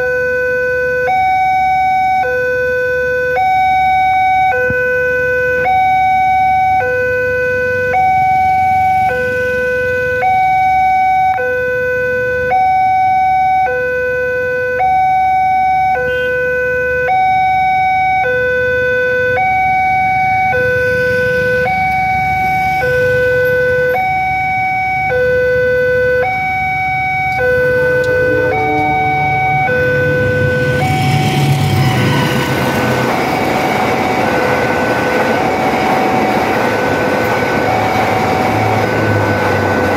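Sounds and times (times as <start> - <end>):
level crossing two-tone alarm: 0.0 - 32.8
train passing: 20.0 - 23.6, 26.6 - 39.9.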